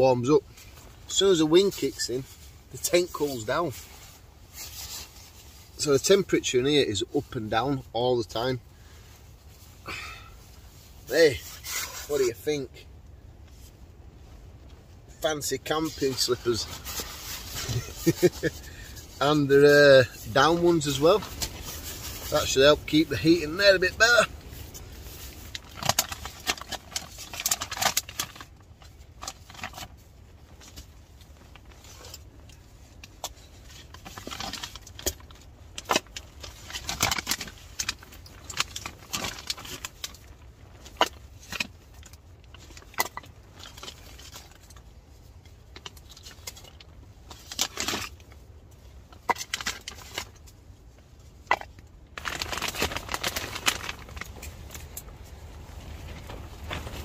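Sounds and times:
packaging rustling: 0:15.4 - 0:44.9, 0:51.5 - 0:57.0.

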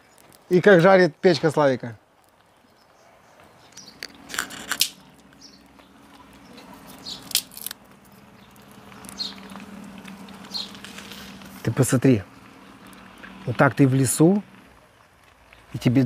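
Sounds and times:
fire crackling: 0:00.0 - 0:16.0
potatoes frying sizzle: 0:05.3 - 0:16.0.

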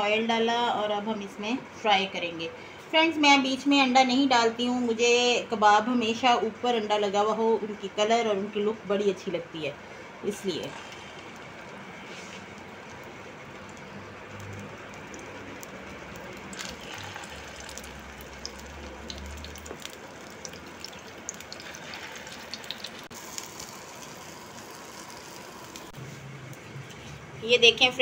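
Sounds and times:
food sizzling in hot oil: 0:12.1 - 0:26.0.

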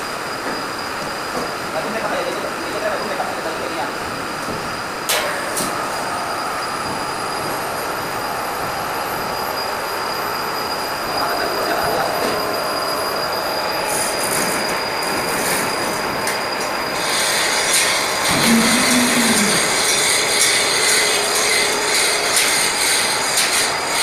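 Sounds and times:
hydraulic pumps whining: 0:03.1 - 0:24.0
thin high whistle: 0:05.4 - 0:24.0.

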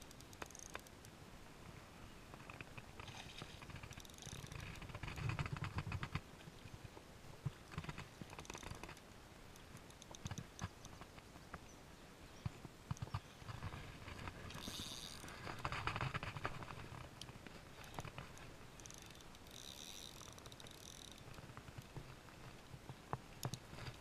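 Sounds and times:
fishing reel clicking: 0:00.1 - 0:00.9, 0:03.9 - 0:04.6, 0:14.5 - 0:15.3, 0:18.8 - 0:21.3.

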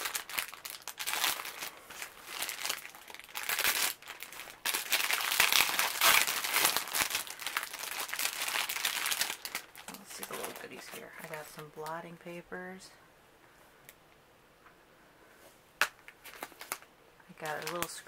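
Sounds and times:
plastic packaging crinkling: 0:00.0 - 0:12.0, 0:15.8 - 0:18.0.

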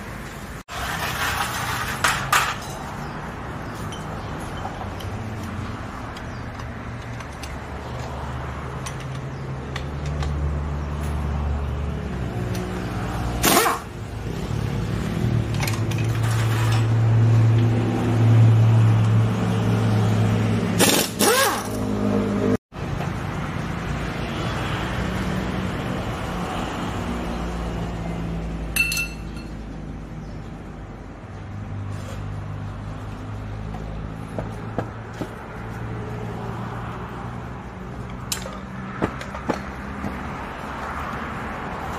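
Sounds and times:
hand tools clinking on metal: 0:00.7 - 0:03.1, 0:03.7 - 0:10.3, 0:28.8 - 0:29.6, 0:38.0 - 0:39.6.

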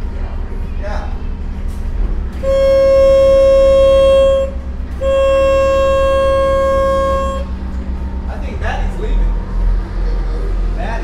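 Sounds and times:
boat engine rumble: 0:00.0 - 0:10.8
boat horn blasts: 0:02.4 - 0:07.8.

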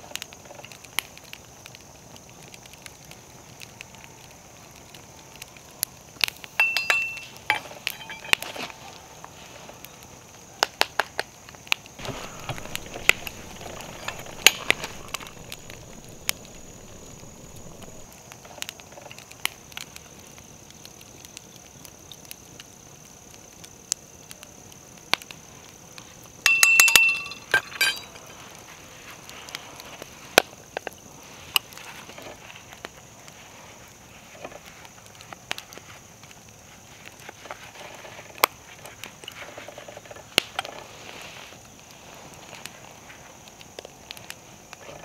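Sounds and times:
ringing metallic clinks: 0:06.6 - 0:08.5, 0:12.0 - 0:18.0, 0:26.5 - 0:28.3
lead balls clicking and clinking: 0:06.6 - 0:08.6, 0:12.0 - 0:18.1, 0:26.5 - 0:28.3.

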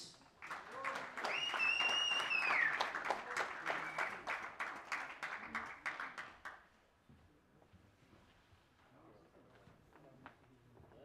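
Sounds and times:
audience applauding: 0:00.4 - 0:06.7.

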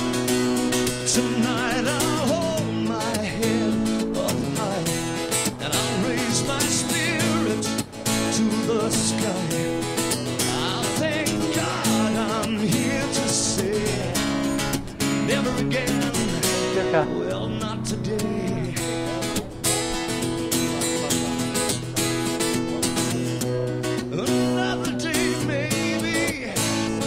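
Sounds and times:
strummed acoustic guitar: 0:00.0 - 0:27.0
person singing: 0:01.1 - 0:09.8, 0:10.4 - 0:19.6, 0:24.0 - 0:27.0.

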